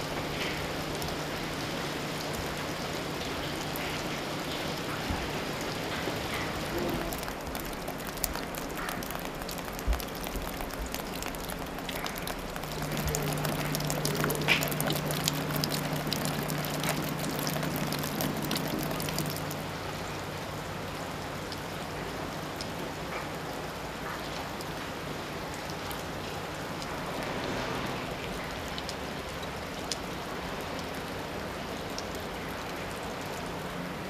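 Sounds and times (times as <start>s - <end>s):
low steady hum: 0.0s - 26.9s
water dripping off ice: 0.0s - 27.1s.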